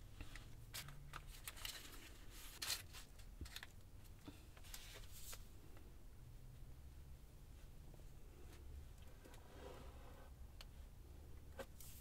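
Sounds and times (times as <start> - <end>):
paper rustling and crinkling: 0.4 - 3.8.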